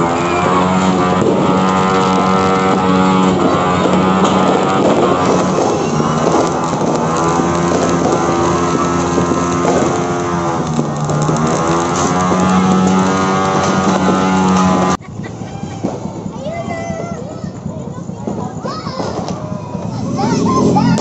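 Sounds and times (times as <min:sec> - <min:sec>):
buzzing party horns: 0:00.0 - 0:15.0
firecrackers crackling: 0:00.0 - 0:21.0.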